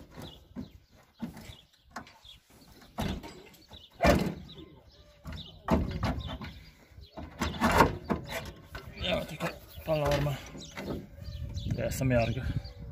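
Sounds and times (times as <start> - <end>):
metallic clunks and scrapes: 0.0 - 4.6, 5.3 - 9.2.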